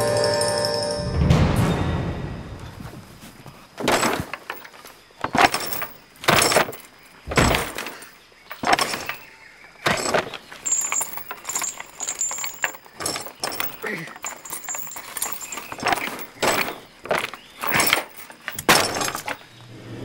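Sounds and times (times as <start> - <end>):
door rattling and knocking: 3.8 - 19.4
metal chain and padlock jangling: 3.8 - 19.5.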